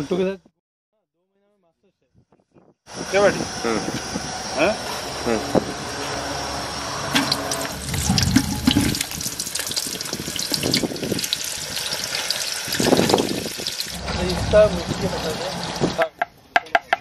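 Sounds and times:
hot oil sizzling and crackling: 7.0 - 16.0.

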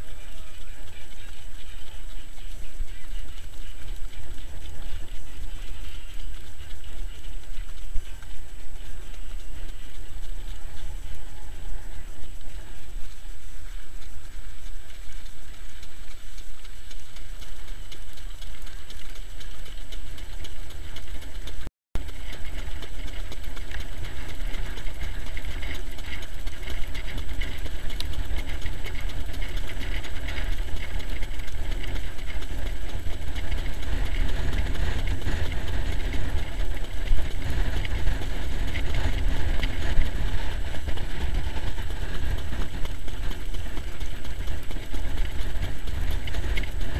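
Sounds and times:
rolling rumble of wheels: 0.0 - 46.9
wind buffeting microphone: 0.0 - 46.9.

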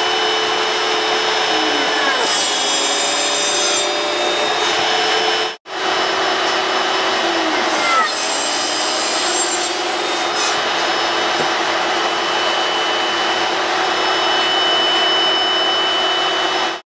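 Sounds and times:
power tools whirring: 0.0 - 16.8
falling whine of spinning down: 4.0 - 16.8.

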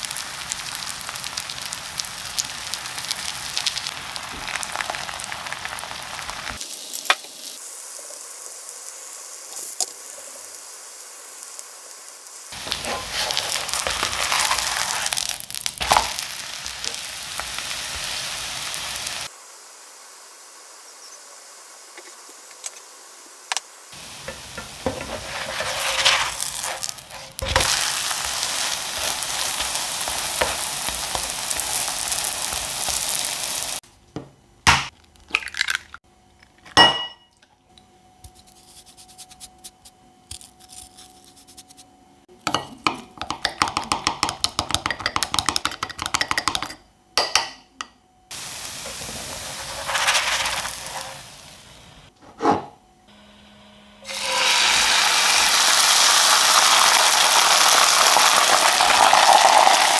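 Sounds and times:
crepe sizzling in oil: 0.0 - 33.8, 48.3 - 52.1, 54.0 - 59.9.

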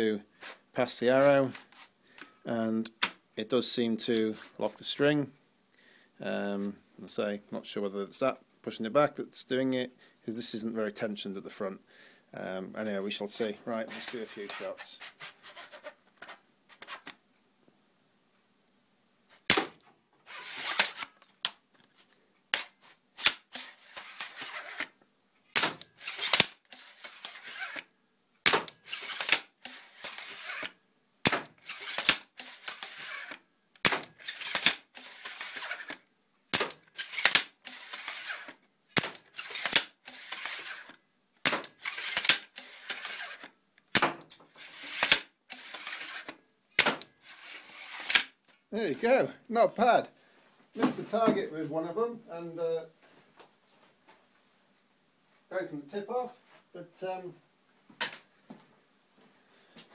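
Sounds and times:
arrows striking foam target: 19.5 - 19.8, 25.6 - 27.1, 28.4 - 30.7, 31.3 - 36.0, 36.6 - 37.5, 39.0 - 40.5, 41.4 - 44.3, 44.9 - 47.0
plastic mechanism snapping and clacking: 25.5 - 27.9, 28.5 - 30.7, 31.3 - 36.0, 36.6 - 47.1, 48.0 - 48.3
bow string scraping: 26.0 - 27.9, 31.6 - 33.4.

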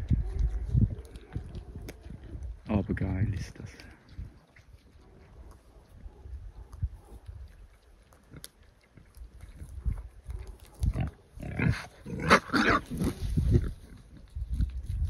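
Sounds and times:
boars squealing and grunting: 10.9 - 13.2.

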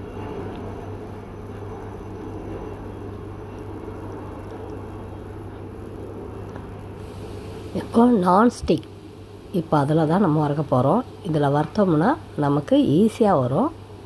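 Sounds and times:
low hum: 0.0 - 14.0
even hiss: 6.9 - 11.3.

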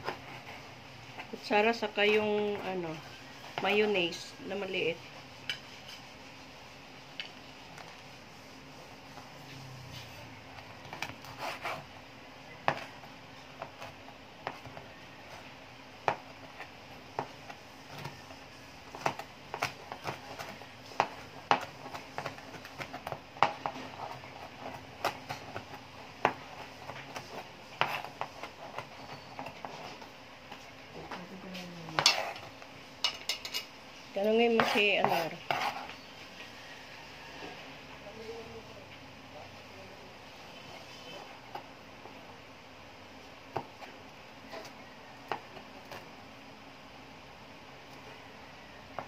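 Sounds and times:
knife chopping on plastic board: 18.9 - 29.6.

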